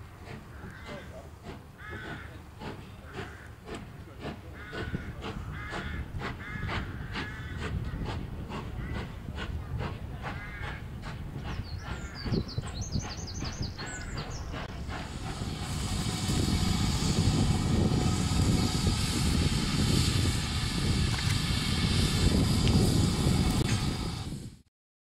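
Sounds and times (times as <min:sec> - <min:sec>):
steam locomotive hiss and rumble: 0:00.0 - 0:24.7
small birds chirping: 0:11.4 - 0:14.7
birds calling: 0:11.4 - 0:15.0.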